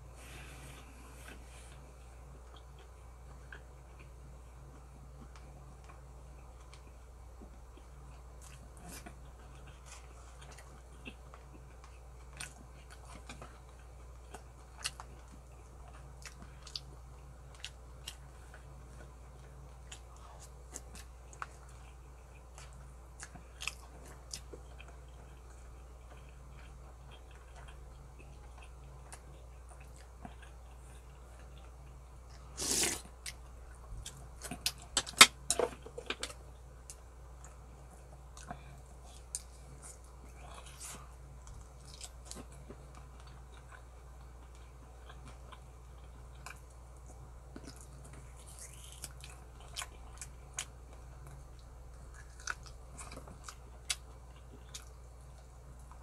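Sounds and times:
chewing with sharp clicks: 0:02.4 - 0:07.0.

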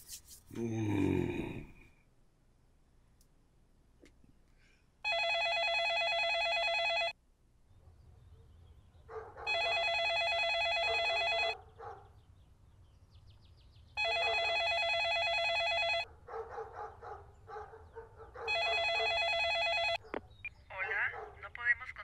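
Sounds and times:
telephone ringing: 0:05.0 - 0:07.2, 0:09.5 - 0:11.6, 0:14.0 - 0:16.1, 0:18.5 - 0:20.0.

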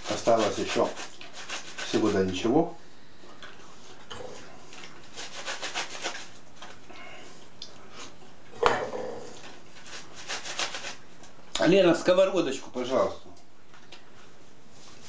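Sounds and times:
pear rasping on a metal grater: 0:00.0 - 0:02.2, 0:05.0 - 0:06.4, 0:09.7 - 0:11.0.

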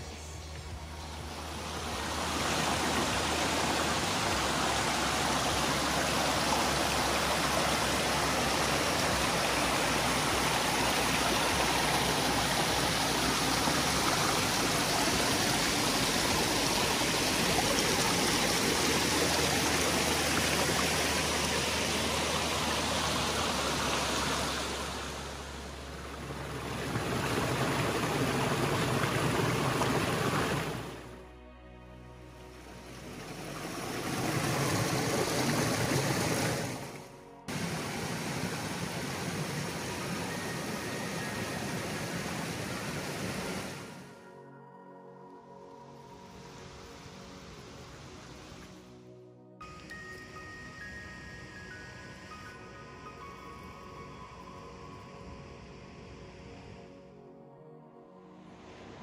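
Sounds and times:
stream water rushing: 0:00.0 - 0:31.2, 0:32.2 - 0:44.2, 0:46.2 - 0:48.9.

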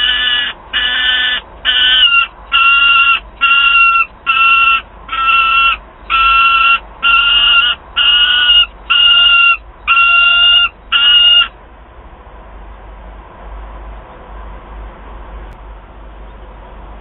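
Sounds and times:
falcon calling: 0:00.0 - 0:11.5.

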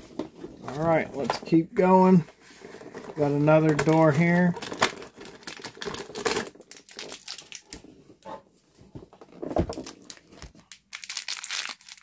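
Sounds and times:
scrapes clicks and crinkles: 0:00.0 - 0:08.2
toy packaging being handled: 0:00.1 - 0:08.0, 0:09.2 - 0:12.0.

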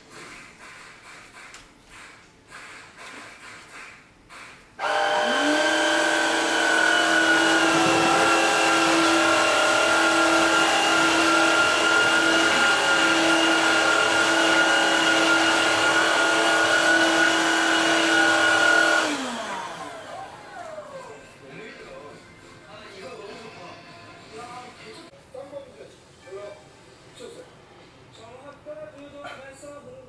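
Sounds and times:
floor cleaner motor whining: 0:04.8 - 0:21.7.

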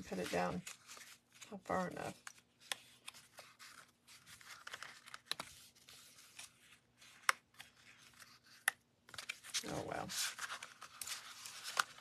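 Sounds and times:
cardstock rustling and scraping: 0:00.0 - 0:12.0.

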